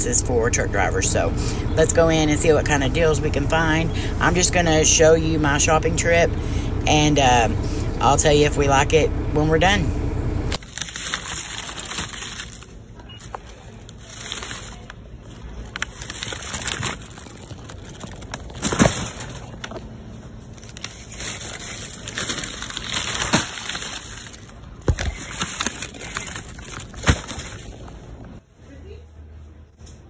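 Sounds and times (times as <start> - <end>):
plastic shrink-wrap crinkling: 10.6 - 28.4.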